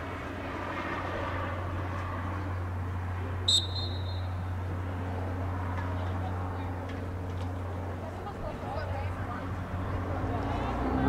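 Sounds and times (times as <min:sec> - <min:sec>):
referee's whistle blast: 0:03.5 - 0:04.4.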